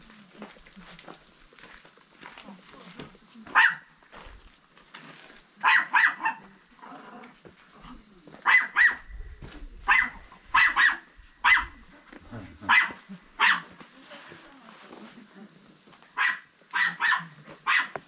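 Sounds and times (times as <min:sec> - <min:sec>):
dog barking: 0:03.5 - 0:03.9, 0:05.6 - 0:06.5, 0:08.4 - 0:09.1, 0:09.8 - 0:11.8, 0:12.6 - 0:13.7, 0:16.2 - 0:18.0.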